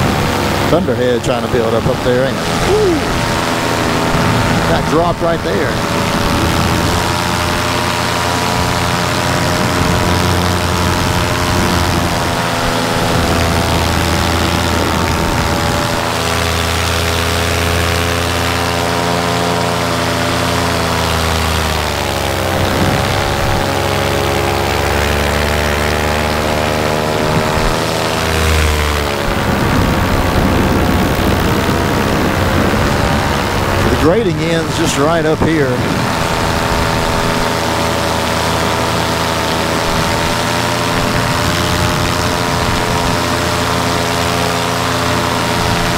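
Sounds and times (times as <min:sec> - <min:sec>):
wind rush: 0:00.0 - 0:16.1, 0:22.2 - 0:25.0, 0:27.1 - 0:44.0
paramotor engine and propeller: 0:00.0 - 0:45.9.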